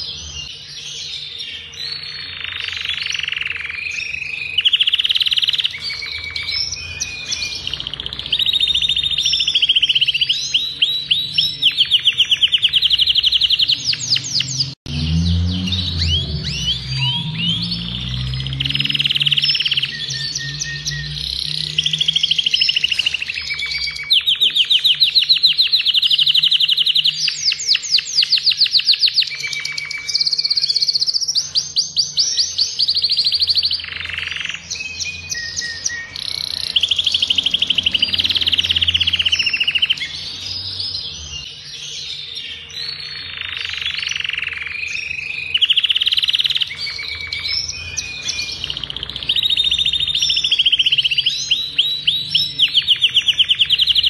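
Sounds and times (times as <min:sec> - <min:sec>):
canary singing trills: 0:00.0 - 0:54.0.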